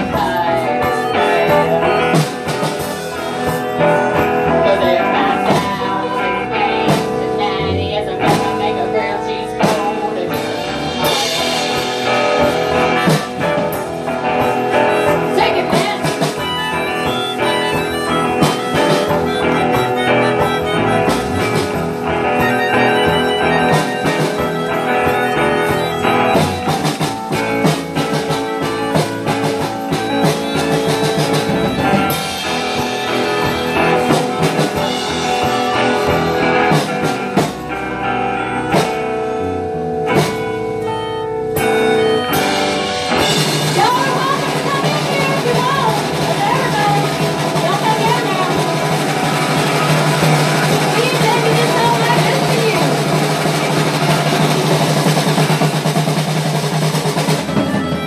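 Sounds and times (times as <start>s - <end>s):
live band guitar instrumental: 0.0s - 58.0s.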